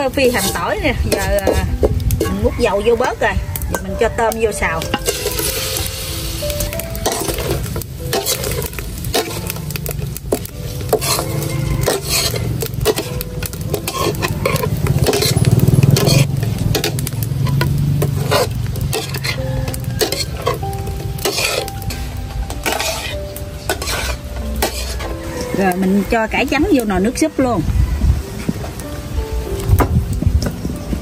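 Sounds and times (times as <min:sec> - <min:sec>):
shrimp sizzling in hot oil: 0:00.0 - 0:31.0
utensil scraping and knocking pan: 0:00.1 - 0:04.1, 0:04.7 - 0:05.9, 0:06.6 - 0:25.5.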